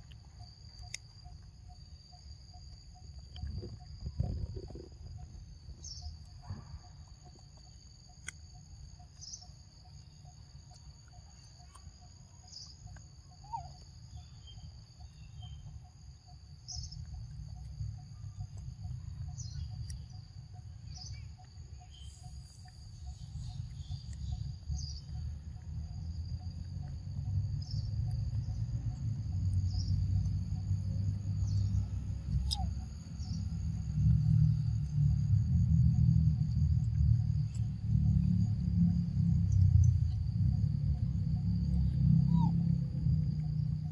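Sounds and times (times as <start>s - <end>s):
short insect chirps: 0.0s - 43.9s
low rumble: 1.8s - 8.6s, 21.8s - 43.9s.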